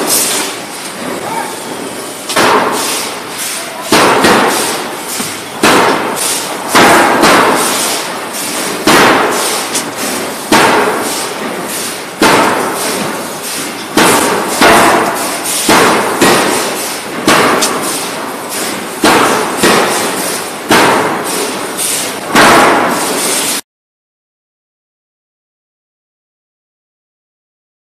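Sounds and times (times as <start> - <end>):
forging hammer blows: 0.0 - 23.6.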